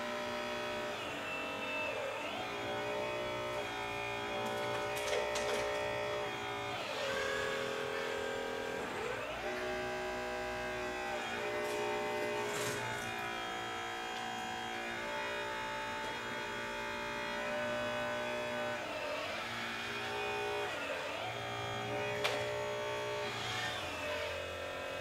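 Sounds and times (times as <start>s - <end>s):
hydraulic pump whining: 0.0s - 25.0s.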